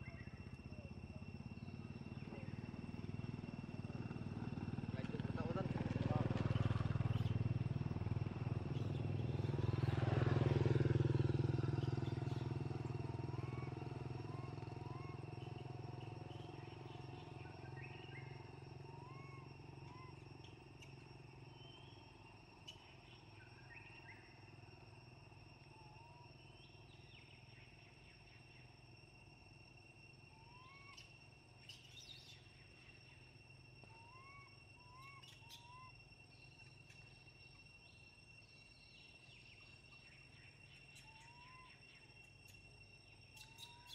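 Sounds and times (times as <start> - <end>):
insect drone: 0.0 - 43.9
passing vehicle engine rumbling: 2.5 - 18.9.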